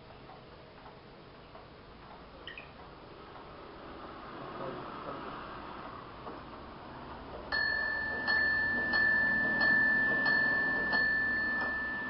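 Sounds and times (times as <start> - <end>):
grandfather clock striking: 7.5 - 12.0.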